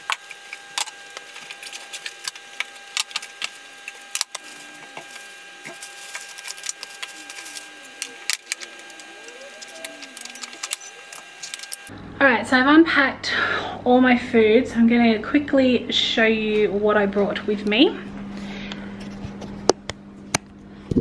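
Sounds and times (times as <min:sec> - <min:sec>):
plastic bags rustling: 0:00.0 - 0:11.9.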